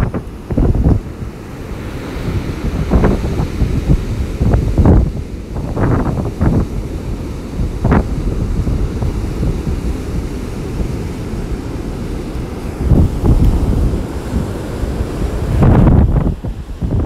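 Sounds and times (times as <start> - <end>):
strong wind buffeting microphone: 0.0 - 17.0
surf washing: 0.0 - 17.0.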